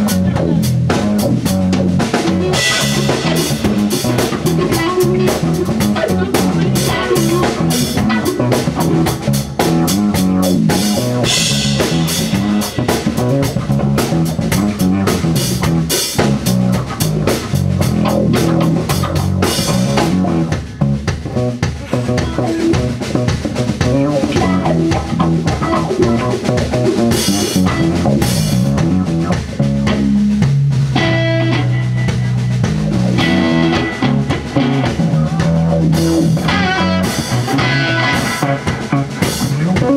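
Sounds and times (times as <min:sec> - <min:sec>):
drum kit with busy cymbals: 0:00.0 - 0:39.9
electric bass: 0:00.0 - 0:39.9
electric guitar: 0:00.0 - 0:39.9
live rock band playing: 0:00.0 - 0:39.9.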